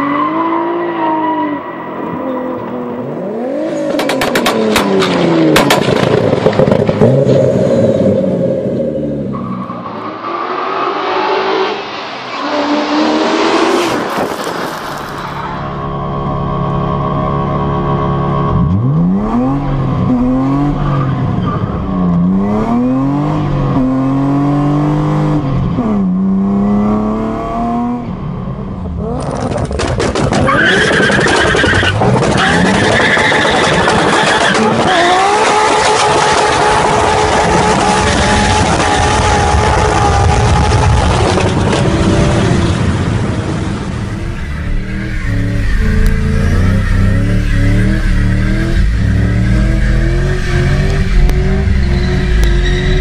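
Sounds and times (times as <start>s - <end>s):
car engine revving: 0.0s - 53.0s
exhaust pops and cracks: 3.9s - 7.0s, 29.2s - 34.9s, 40.5s - 42.1s.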